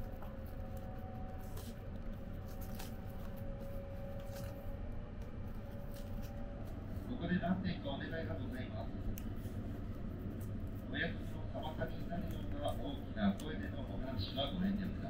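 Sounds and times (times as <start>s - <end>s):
paper wrapping rustling: 0.0s - 7.1s
faint steady hum: 0.0s - 15.0s
train rumbling: 0.0s - 15.0s.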